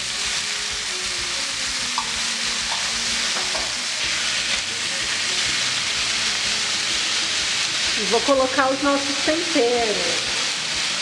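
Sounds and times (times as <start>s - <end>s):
vegetables sizzling in a frying pan: 0.0s - 11.0s
spoon clicking against pan: 2.0s - 3.8s.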